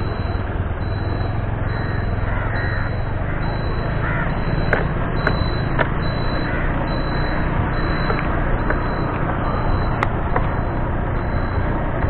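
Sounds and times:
motorbike engine running: 0.0 - 12.0.

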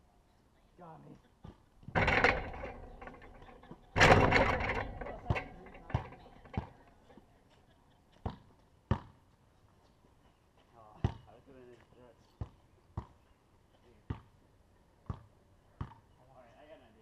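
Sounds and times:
hoop rattling: 1.8 - 7.2
ball bouncing on concrete: 8.2 - 9.2.

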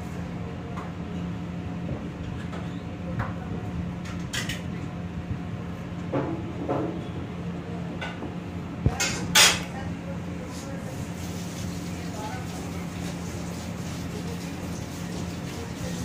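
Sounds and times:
low hum of kitchen equipment: 0.0 - 16.0
dishes and utensils clinking: 8.9 - 9.7.

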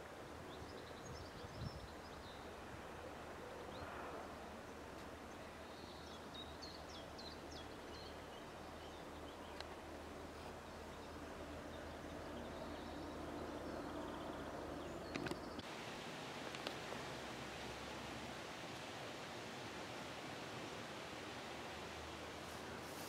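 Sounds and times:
bird chirping: 10.6 - 15.7.

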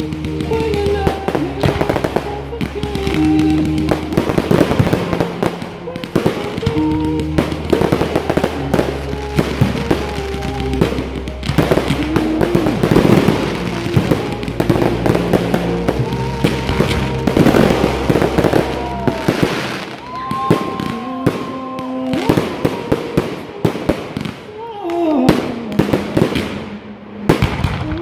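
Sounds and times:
fireworks launches and bursts: 0.0 - 28.0.

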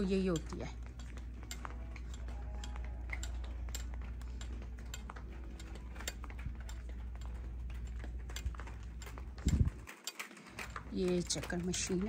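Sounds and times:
footsteps on tiled floor: 0.0 - 12.0.

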